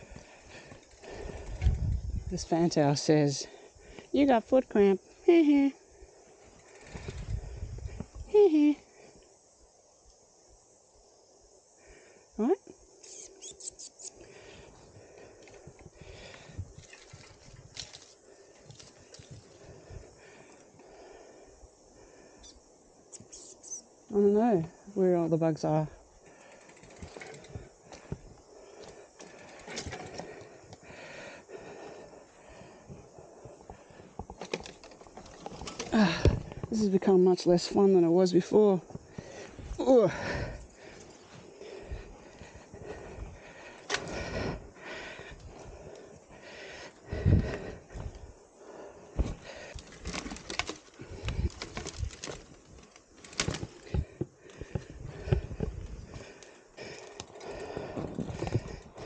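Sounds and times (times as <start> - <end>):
heavy breathing: 0.0 - 2.3, 3.3 - 4.2, 14.1 - 22.7, 26.0 - 36.7, 38.8 - 59.0
mountain bike rattling and knocking: 6.4 - 7.7, 15.5 - 20.0, 26.2 - 30.8, 34.0 - 36.8, 49.2 - 59.0
footsteps on rough ground: 49.1 - 59.0.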